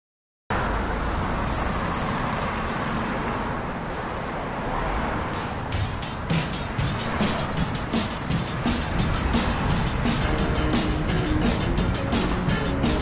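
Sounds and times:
road traffic rumble: 0.5s - 13.0s
faint high chirp: 1.5s - 4.2s.

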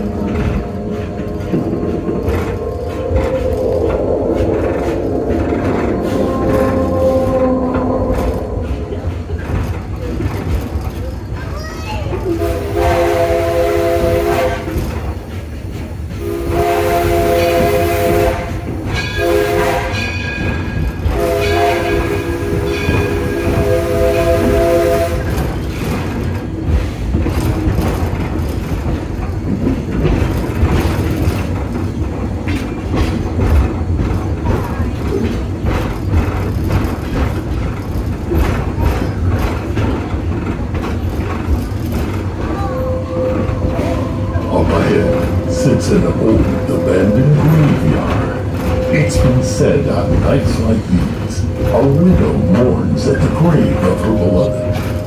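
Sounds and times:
train rumble with rail clatter: 0.0s - 55.0s
steam locomotive whistle blasts: 12.4s - 14.8s, 16.2s - 20.1s, 21.1s - 25.4s.

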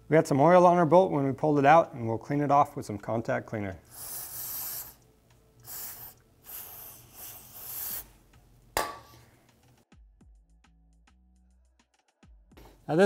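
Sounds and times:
aerosol spray hissing: 3.9s - 8.2s.

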